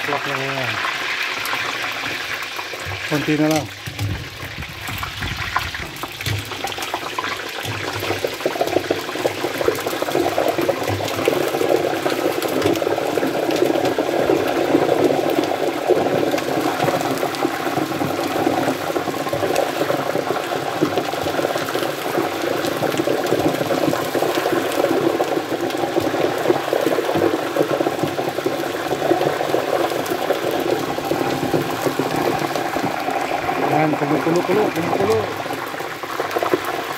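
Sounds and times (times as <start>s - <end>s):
oil bubbling and crackling: 0.0s - 36.9s.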